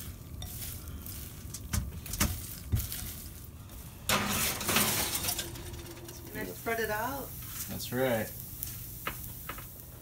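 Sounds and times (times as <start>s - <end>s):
low steady hum: 0.0s - 10.0s
pan scraping onto oven rack: 4.0s - 7.0s.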